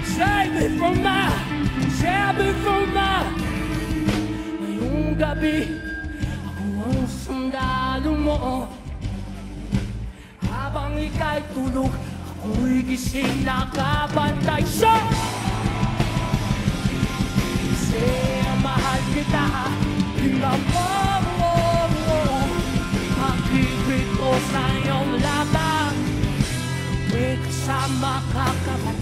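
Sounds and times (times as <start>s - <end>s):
man singing into microphone: 0.0s - 3.6s, 4.4s - 8.9s, 10.4s - 16.1s, 17.6s - 26.1s, 27.1s - 29.0s
live rock band playing: 0.0s - 29.0s.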